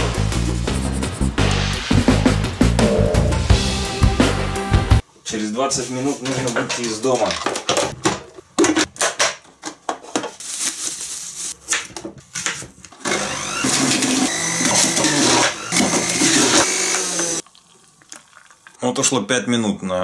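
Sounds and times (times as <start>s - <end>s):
juicer motor running: 13.0s - 17.4s.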